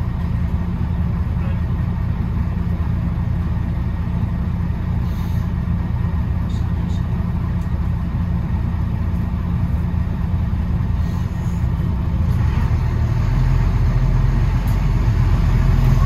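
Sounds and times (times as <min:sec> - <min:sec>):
bus engine rumbling: 0:00.0 - 0:16.0.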